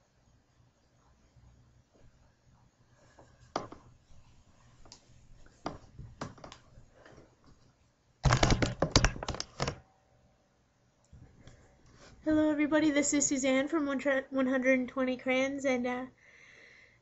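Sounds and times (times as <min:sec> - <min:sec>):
handling clicks and knocks: 0:08.2 - 0:09.8.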